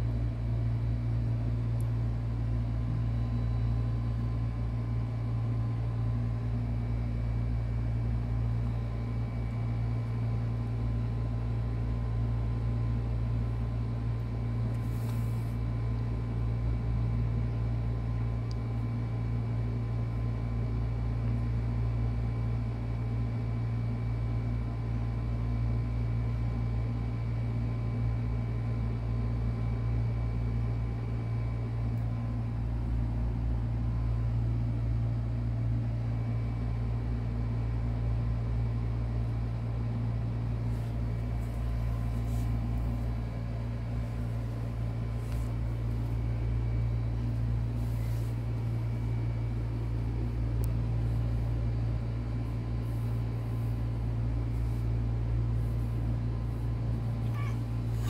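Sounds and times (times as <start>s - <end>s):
faint thin whine: 0.0s - 18.9s, 40.2s - 58.0s
low machine hum: 0.0s - 58.0s.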